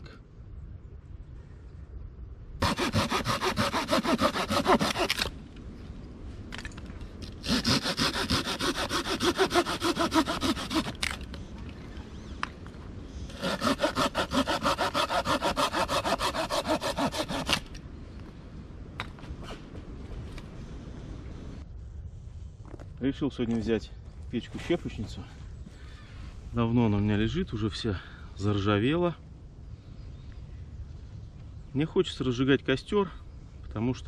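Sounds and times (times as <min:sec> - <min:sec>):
hand saw cutting branch: 0:02.6 - 0:05.3, 0:07.3 - 0:11.2, 0:13.3 - 0:17.7.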